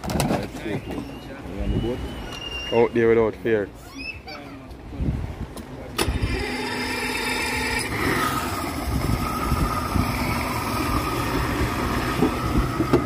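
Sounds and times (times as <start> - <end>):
motorboat engine running: 6.0 - 13.0.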